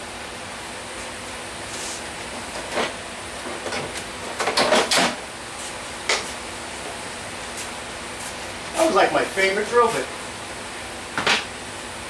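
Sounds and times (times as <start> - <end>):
knocks on workshop bench: 11.2 - 11.5.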